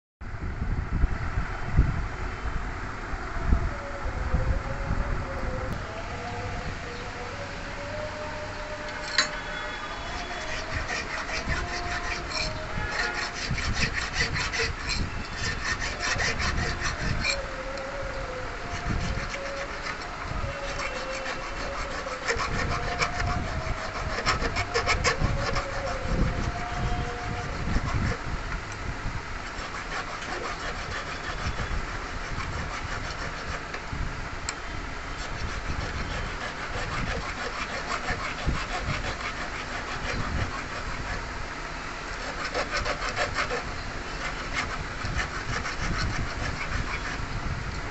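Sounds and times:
hand file scraping metal: 0:08.8 - 0:17.9, 0:18.6 - 0:28.2, 0:29.4 - 0:33.8, 0:35.1 - 0:41.2, 0:42.1 - 0:47.4.

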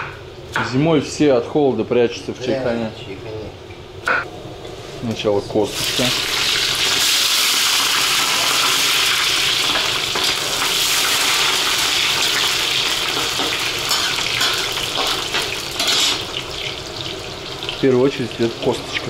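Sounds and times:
bones sizzling in hot oil: 0:05.6 - 0:19.0.

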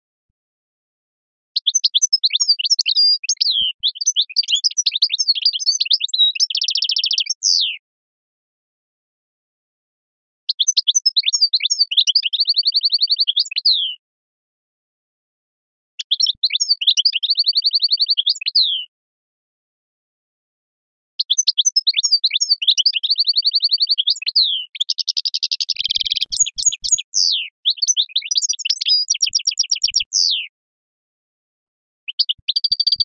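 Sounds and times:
songbird twittering: 0:01.6 - 0:07.8, 0:10.5 - 0:14.0, 0:16.0 - 0:18.8, 0:21.2 - 0:30.5, 0:32.1 - 0:33.0.

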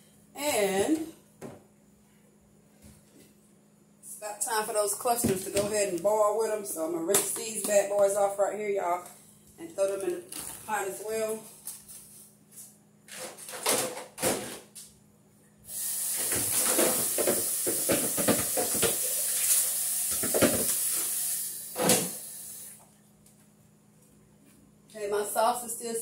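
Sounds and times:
tap water running: 0:15.7 - 0:22.6.

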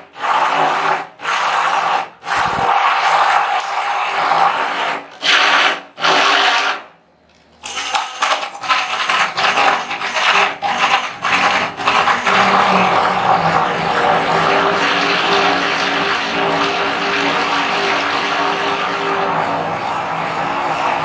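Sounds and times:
stick blender running: 0:00.0 - 0:07.0, 0:07.6 - 0:21.0.

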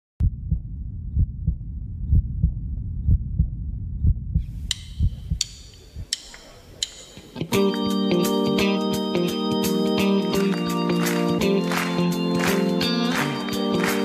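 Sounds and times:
heartbeat thumps: 0:00.2 - 0:06.2.

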